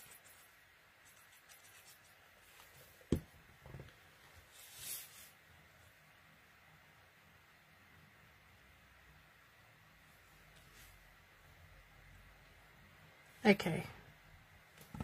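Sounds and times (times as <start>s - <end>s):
soft knock: 3.1s - 3.9s.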